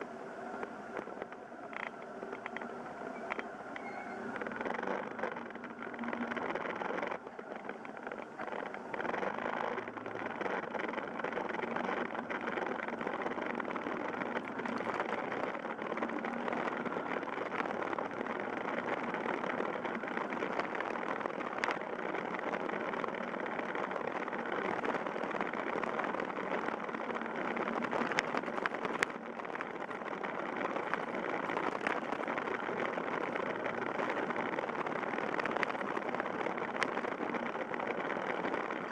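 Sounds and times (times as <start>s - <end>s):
wind and road noise: 0.0s - 38.9s.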